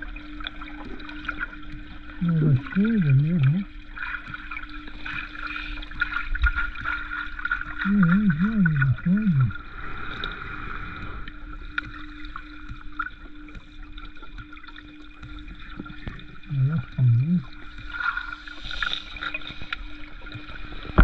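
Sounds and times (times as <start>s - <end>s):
water moving underwater: 0.0s - 21.0s
low hum: 2.1s - 4.5s, 7.8s - 13.5s, 15.6s - 17.8s
person's voice: 2.2s - 3.7s, 7.8s - 9.6s, 16.5s - 17.5s.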